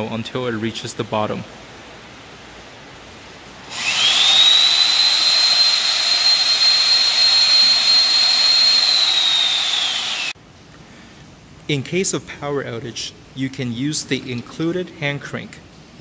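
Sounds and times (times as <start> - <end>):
electric winch motor whine: 3.7 - 10.4.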